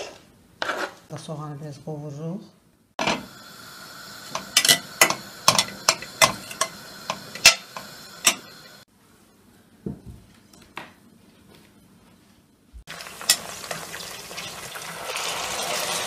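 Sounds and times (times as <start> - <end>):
onion frying sizzle: 3.0 - 8.9, 12.9 - 16.0
metal spoon clinking against pot: 4.4 - 8.6.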